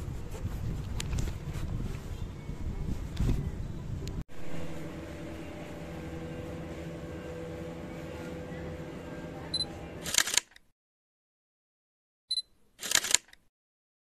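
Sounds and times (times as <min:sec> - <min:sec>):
camera shutter click: 0:10.0 - 0:10.6, 0:12.8 - 0:13.4
camera focus beep: 0:12.3 - 0:13.3.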